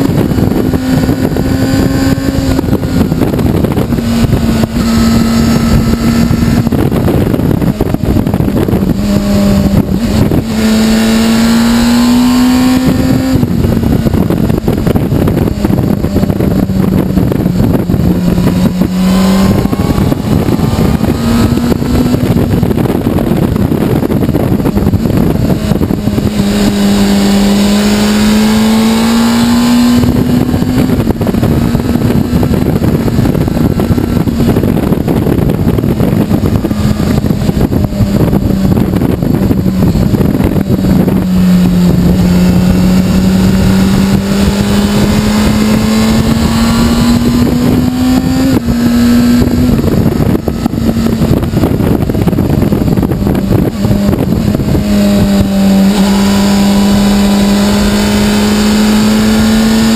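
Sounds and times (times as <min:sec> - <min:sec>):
motorcycle engine revving: 0:00.0 - 0:59.9
wind rushing on microphone: 0:00.0 - 0:59.9.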